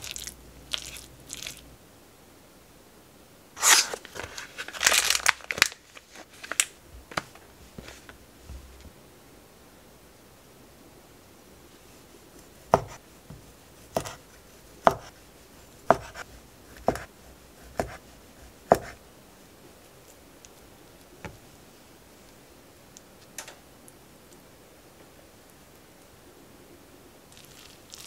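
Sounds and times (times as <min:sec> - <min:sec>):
knife chopping on wooden board: 0:12.7 - 0:14.2, 0:14.8 - 0:15.2, 0:15.8 - 0:19.0.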